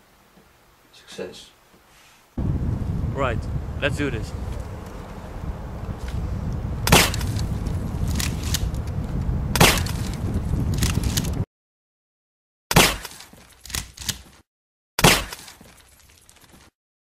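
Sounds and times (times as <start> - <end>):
wind noise on microphone: 2.4 - 11.5
gunshots: 6.8 - 7.4, 9.6 - 10.1.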